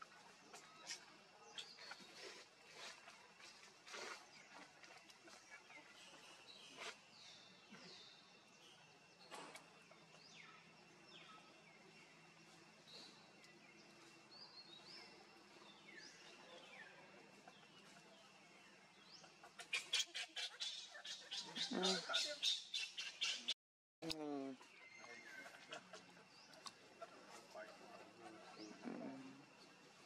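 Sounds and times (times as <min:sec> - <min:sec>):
birds calling: 0:19.0 - 0:23.6
rapid sharp bird calls: 0:19.4 - 0:23.5.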